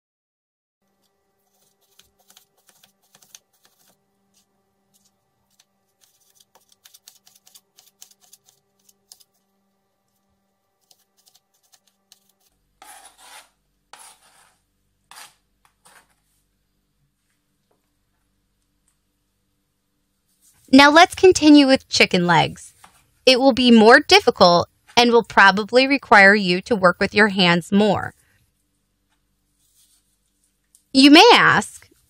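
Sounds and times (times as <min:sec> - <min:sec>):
knife scraping board: 0:12.8 - 0:16.2.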